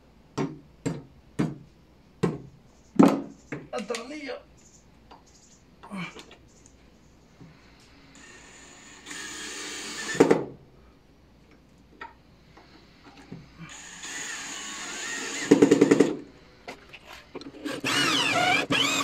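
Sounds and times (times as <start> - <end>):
drill whine boring wood: 8.2 - 10.3, 13.7 - 16.2, 17.6 - 19.0
power drill driving screws: 8.2 - 10.3, 13.7 - 16.2, 17.5 - 19.0.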